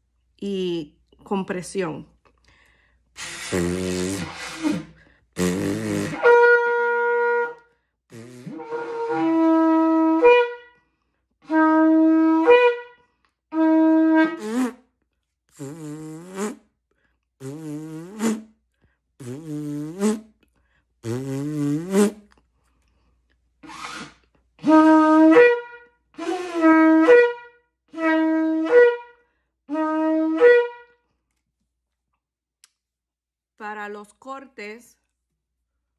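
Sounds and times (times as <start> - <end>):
shofar blasts: 5.9 - 10.8, 11.4 - 14.8, 24.6 - 31.0.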